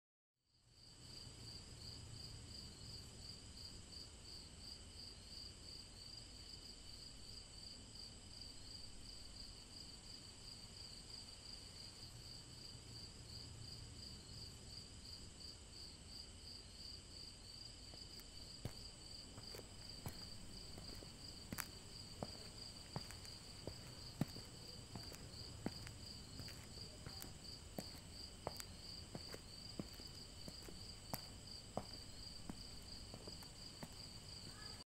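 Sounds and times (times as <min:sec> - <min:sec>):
crickets chirring: 0:17.5 - 0:34.8.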